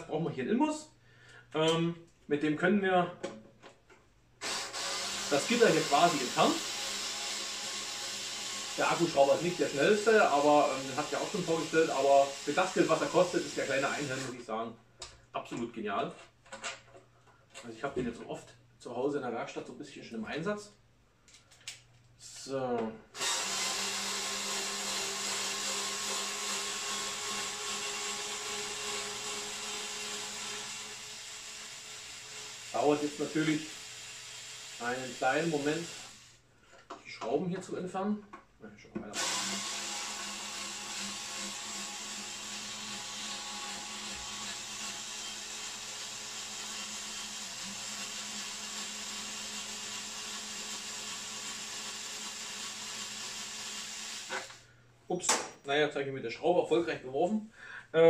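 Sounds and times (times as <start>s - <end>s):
cordless screwdriver motor running: 4.4s - 9.7s, 23.2s - 36.4s, 39.2s - 54.6s.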